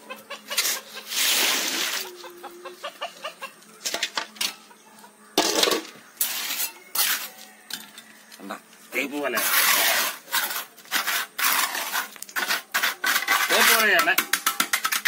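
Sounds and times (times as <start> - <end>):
steel trowel scraping concrete: 0.4 - 2.2, 6.2 - 7.5, 9.0 - 15.0
wet concrete pouring: 9.4 - 15.0.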